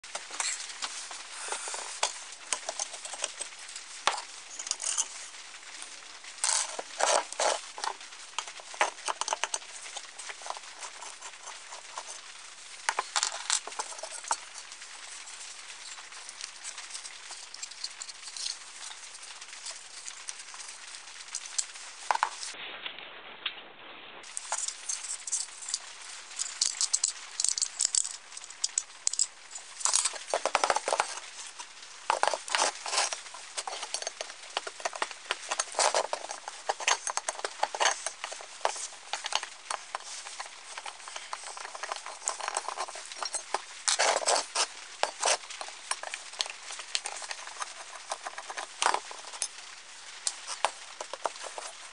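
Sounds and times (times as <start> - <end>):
metal clicks taps and scrapes: 6.4 - 12.2, 24.3 - 49.6, 50.2 - 51.8.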